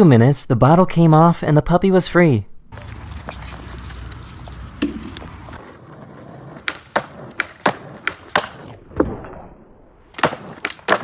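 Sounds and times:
skateboard clacking on asphalt: 0:02.8 - 0:09.4, 0:10.1 - 0:11.0.

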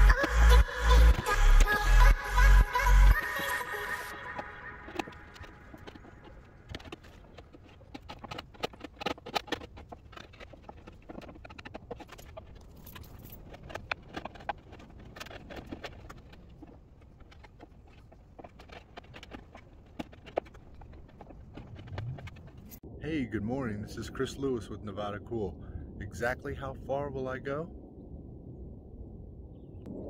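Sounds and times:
sharp clicks and scratches: 0:00.0 - 0:22.8.

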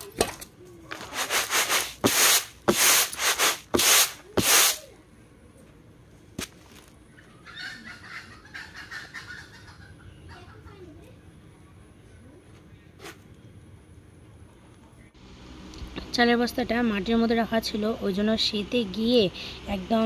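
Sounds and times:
grain swishing on winnowing tray: 0:01.0 - 0:04.8
faint chicken clucking: 0:07.0 - 0:12.9.

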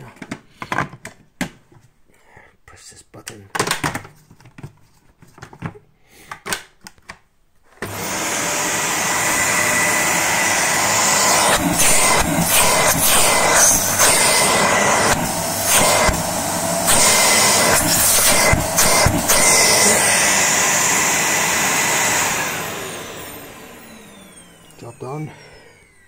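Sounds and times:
vacuum cleaner running: 0:07.7 - 0:26.0.

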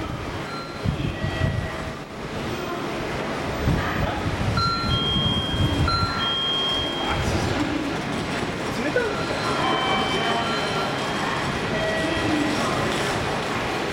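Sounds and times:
train running gear rumbling: 0:00.0 - 0:13.9
high-pitched tones: 0:04.6 - 0:07.6, 0:09.0 - 0:12.7.

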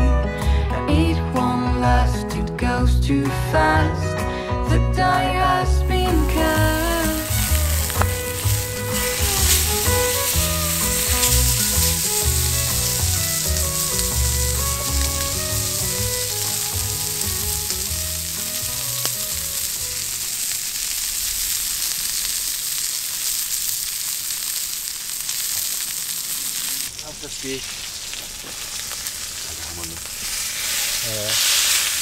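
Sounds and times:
soft background music: 0:00.0 - 0:20.1
steak sizzling in a pan: 0:05.8 - 0:32.0.

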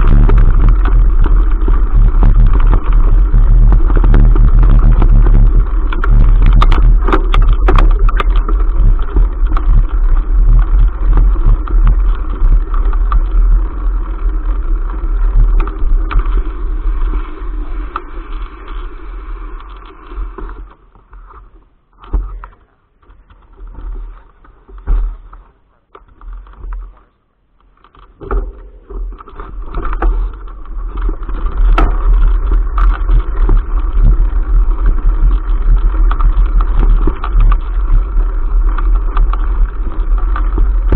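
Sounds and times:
wind buffeting: 0:00.0 - 0:20.0, 0:28.1 - 0:40.9
thumps: 0:20.4 - 0:34.3.

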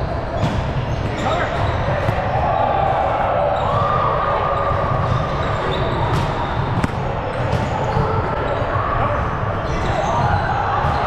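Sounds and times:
din of volleyball play: 0:00.0 - 0:11.0
ball slaps: 0:06.1 - 0:08.2.

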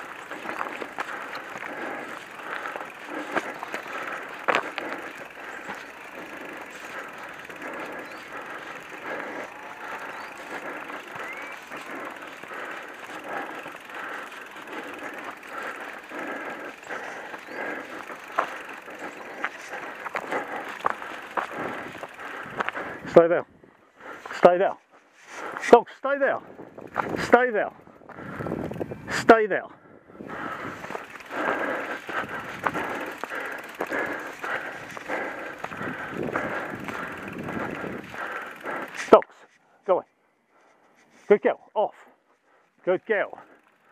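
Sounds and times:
bike tyres on dirt: 0:00.0 - 0:43.9.

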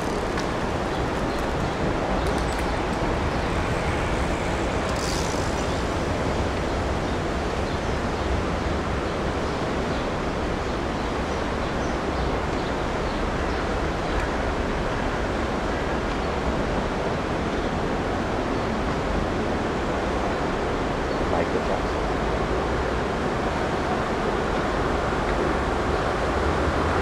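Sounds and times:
wind on microphone: 0:00.0 - 0:10.6
low street rumble: 0:00.0 - 0:27.0.

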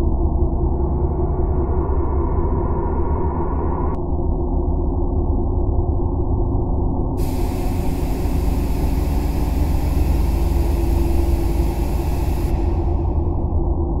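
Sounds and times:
hiss: 0:07.2 - 0:13.8
low engine rumble: 0:07.2 - 0:14.0.

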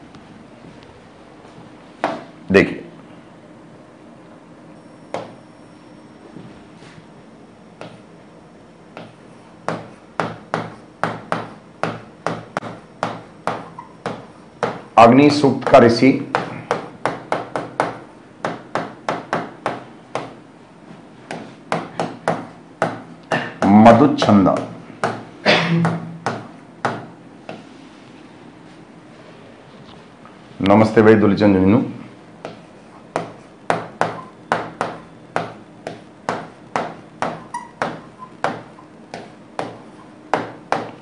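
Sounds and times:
pen tapping on glass panel: 0:08.9 - 0:14.9, 0:32.4 - 0:41.0.

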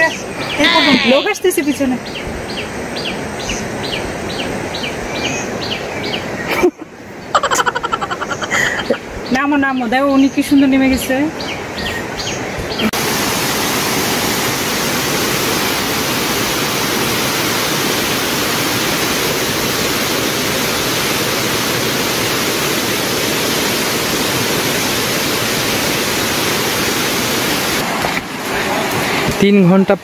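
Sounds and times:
rushing water: 0:11.6 - 0:30.0.

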